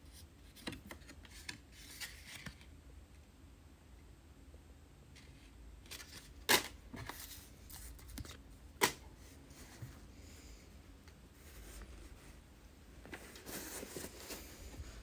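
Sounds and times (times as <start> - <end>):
cardboard rustling and scraping: 13.0 - 15.0.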